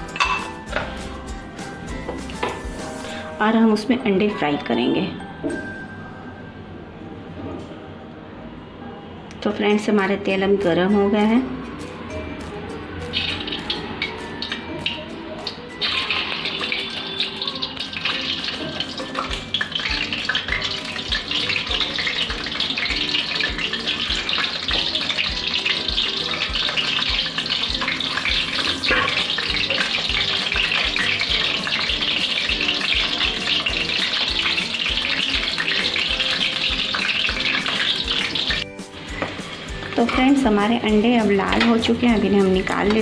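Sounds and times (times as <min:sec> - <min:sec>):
eggs sizzling in hot oil: 0:00.0 - 0:03.4, 0:12.9 - 0:43.0
background music with steady beat: 0:00.0 - 0:07.3, 0:10.2 - 0:43.0.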